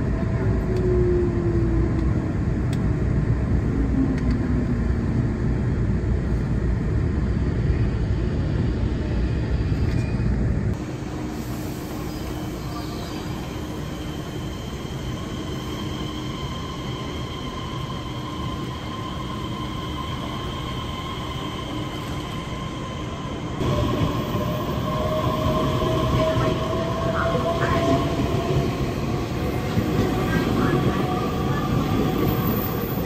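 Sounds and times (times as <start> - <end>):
electric train humming: 0.0 - 33.0
electric train whine pulling away: 10.8 - 33.0.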